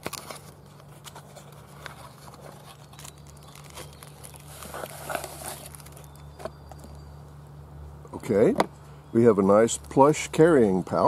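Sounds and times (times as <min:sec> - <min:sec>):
cardboard box rustling and clicking: 0:00.0 - 0:06.9
steady low hum: 0:00.0 - 0:11.0.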